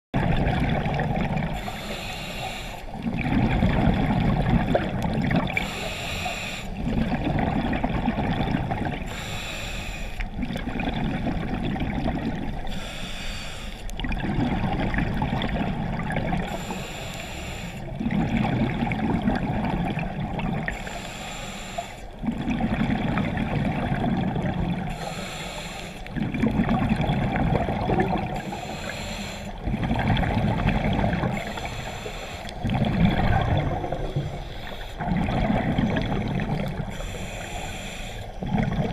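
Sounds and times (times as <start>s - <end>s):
bubbling exhale: 0.2s - 38.9s
regulator hissing inhale: 1.6s - 3.0s, 5.6s - 6.8s, 9.0s - 10.3s, 12.7s - 13.9s, 16.5s - 17.9s, 20.7s - 22.2s, 24.9s - 26.1s, 28.4s - 29.7s, 31.3s - 32.7s, 34.0s - 35.1s, 36.7s - 38.4s.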